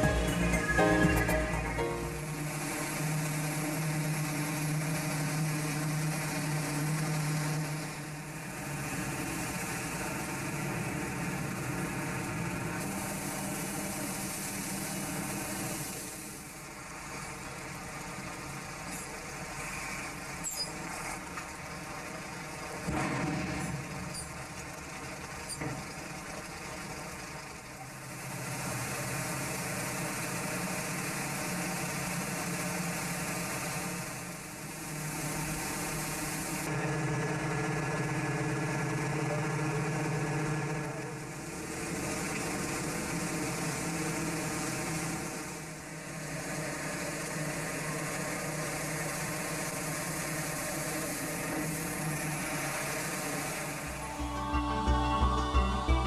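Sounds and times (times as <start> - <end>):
boat engine running: 0.0 - 56.0
heavy truck engine running: 0.0 - 56.0
rush of water jet: 12.0 - 36.7, 41.3 - 54.0.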